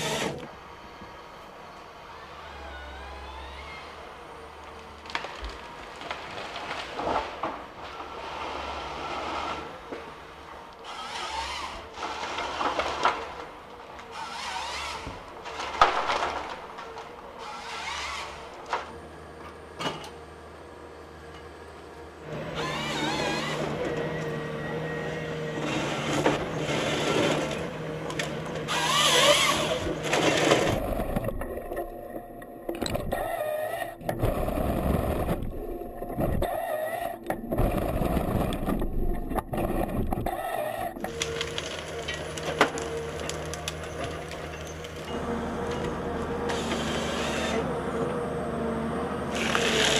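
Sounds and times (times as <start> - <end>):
harvester engine running: 0.0 - 49.9
wood cracking and snapping: 4.6 - 8.1, 12.0 - 18.9, 37.2 - 45.1
crunching of wood and bark: 4.6 - 8.2, 10.7 - 18.7, 37.2 - 47.4, 49.3 - 49.9.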